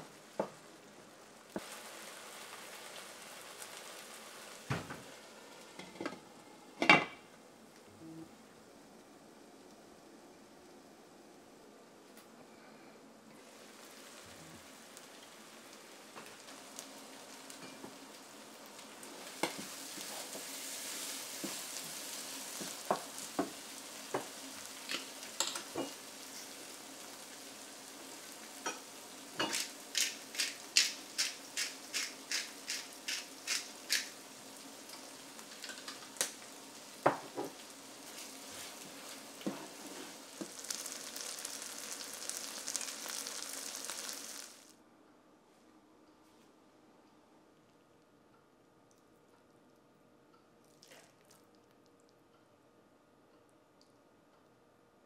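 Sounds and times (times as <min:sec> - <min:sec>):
hash sizzling in a pan: 0:00.0 - 0:07.4, 0:13.4 - 0:44.8
wooden spoon scraping a pan: 0:19.1 - 0:23.0, 0:38.0 - 0:40.8.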